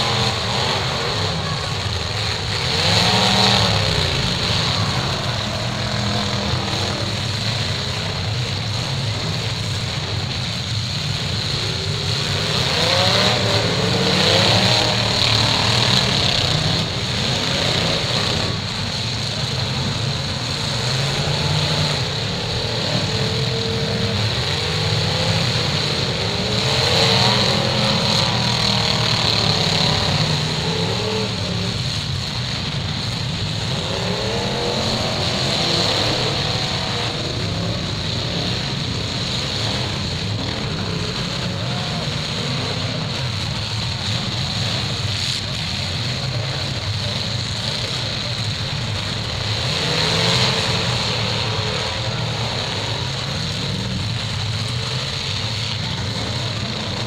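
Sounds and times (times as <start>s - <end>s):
car engines revving: 0.0s - 57.0s.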